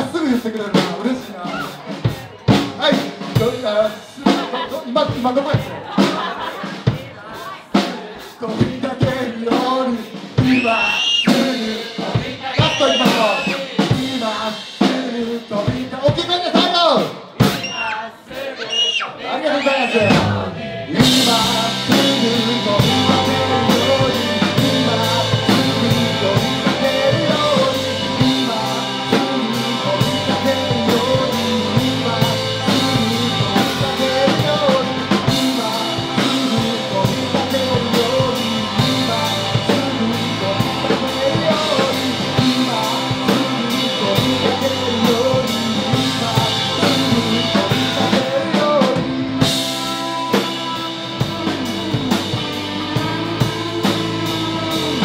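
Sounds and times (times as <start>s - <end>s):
bass guitar: 0.0s - 17.6s, 20.0s - 55.0s
drum kit: 0.0s - 18.0s, 19.8s - 55.0s
man singing: 0.0s - 55.0s
electric guitars: 20.1s - 55.0s.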